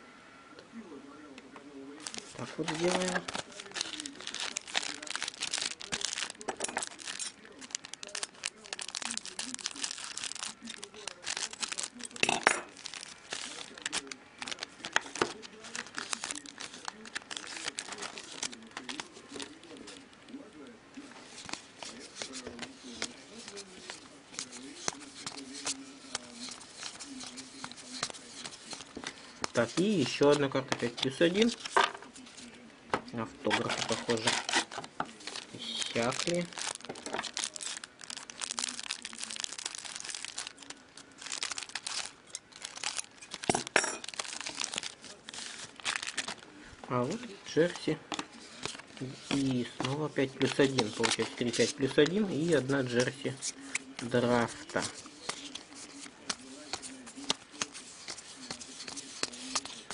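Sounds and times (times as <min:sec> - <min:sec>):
wrapper crinkling as torn open: 0:02.0 - 0:20.0, 0:33.5 - 0:59.9
trading cards being shuffled: 0:02.0 - 0:20.1, 0:21.1 - 0:32.5, 0:33.5 - 0:46.4, 0:47.0 - 0:59.9.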